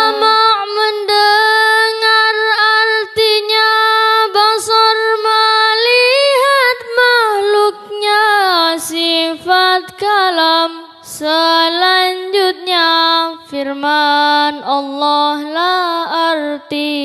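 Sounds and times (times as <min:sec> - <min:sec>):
woman singing unaccompanied: 0:00.0 - 0:17.0.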